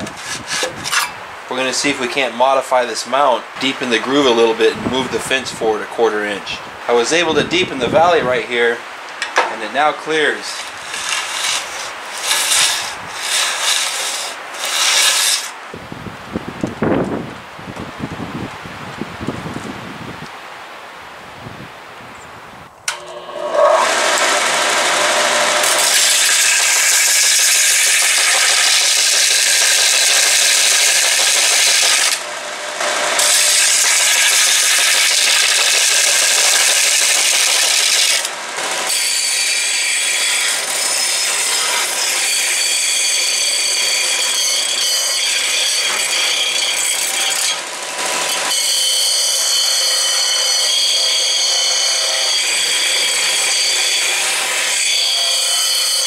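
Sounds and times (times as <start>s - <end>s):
metal grinding on sander: 0.0s - 1.2s, 10.2s - 15.6s, 22.9s - 56.0s.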